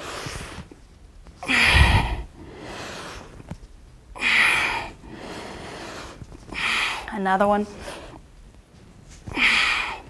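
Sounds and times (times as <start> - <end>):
woman breathing out forcefully: 1.4 - 3.3, 4.2 - 7.1, 9.3 - 10.0.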